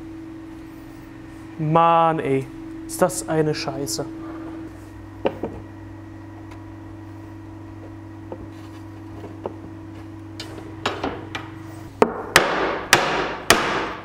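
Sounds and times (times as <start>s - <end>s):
steady hum: 0.0s - 14.0s
hammer blows on wooden panels: 12.0s - 14.0s.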